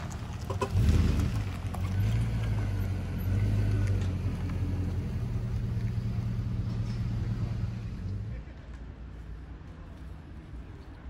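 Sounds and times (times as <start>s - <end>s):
truck engine pulling away: 0.0s - 8.3s.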